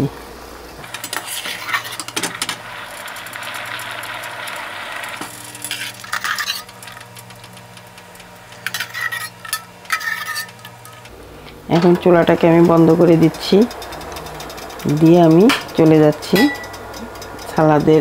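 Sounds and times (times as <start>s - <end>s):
low hum: 0.0s - 18.0s
corn kernels clattering into bowl: 0.8s - 11.1s.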